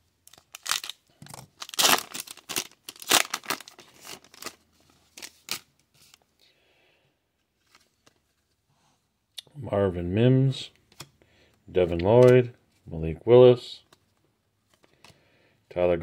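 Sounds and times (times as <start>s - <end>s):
foil wrapper tearing and crinkling: 0.3s - 5.7s
cards rustling: 0.3s - 6.2s, 7.5s - 8.6s, 11.8s - 12.8s.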